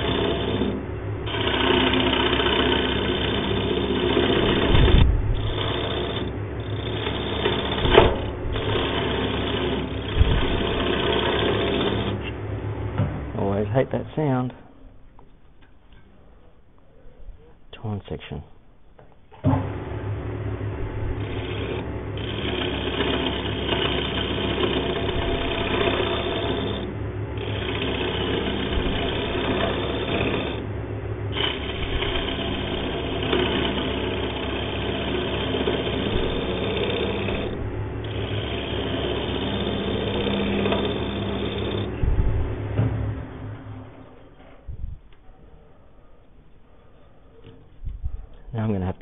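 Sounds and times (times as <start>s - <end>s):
lathe motor hum: 0.0s - 13.7s, 19.6s - 44.5s
turning tool scraping wood: 0.0s - 14.1s, 20.1s - 45.2s.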